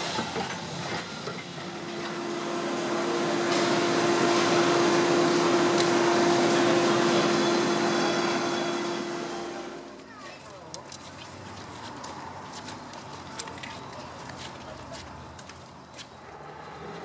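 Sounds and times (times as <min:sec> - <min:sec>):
passing train: 0:00.0 - 0:17.0
mechanical droning hum: 0:01.4 - 0:10.0.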